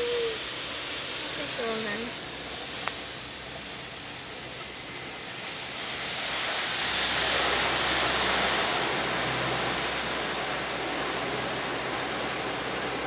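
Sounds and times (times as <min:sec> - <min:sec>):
car wash rushing noise: 0:00.0 - 0:13.0.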